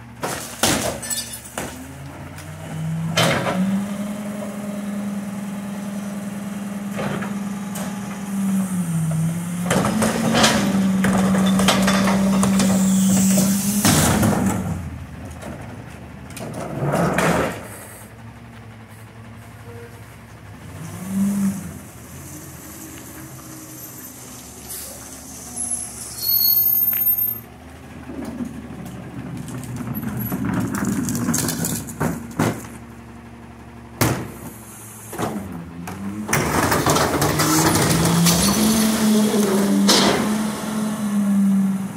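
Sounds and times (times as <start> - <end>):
garbage truck engine: 0.0 - 41.9
loud mechanical bangs: 9.6 - 15.7.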